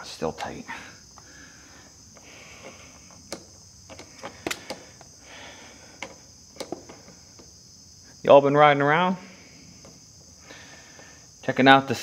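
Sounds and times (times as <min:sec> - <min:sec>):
crickets chirping: 0:00.0 - 0:12.0
hand tool clicking and scraping: 0:02.1 - 0:07.6.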